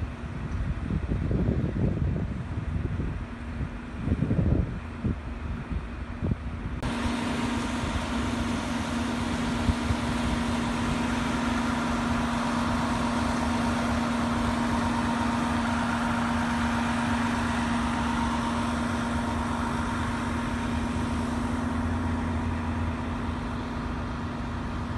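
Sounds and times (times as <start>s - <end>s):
vehicle engine idling: 6.8s - 24.9s.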